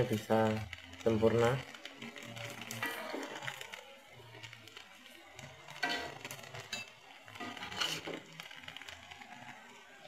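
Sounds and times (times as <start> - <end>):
oil sizzling in a wok: 0.0 - 10.0
metal spatula scraping a wok: 2.0 - 3.8, 5.4 - 8.3.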